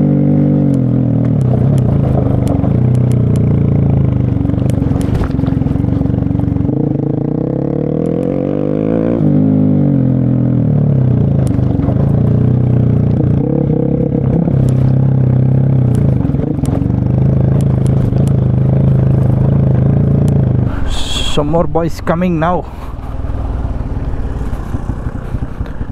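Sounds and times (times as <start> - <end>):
vehicle engine under load: 0.0 - 25.9
stones and body rattling: 1.2 - 6.7.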